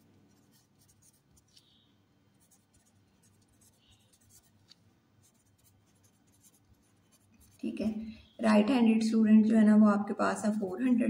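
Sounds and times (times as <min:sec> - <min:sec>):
pen scratching handwriting: 0:00.0 - 0:01.7, 0:02.4 - 0:08.0, 0:10.2 - 0:11.0.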